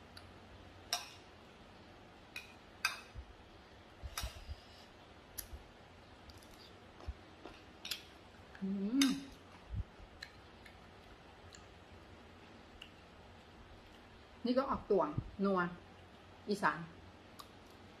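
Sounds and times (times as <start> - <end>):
person humming: 8.6 - 9.2.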